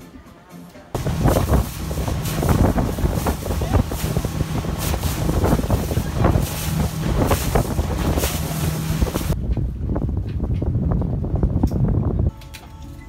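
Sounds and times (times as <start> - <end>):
motorboat engine drone: 1.0 - 9.4
dull low rumble: 1.0 - 12.3
wind buffeting microphone: 1.0 - 12.3.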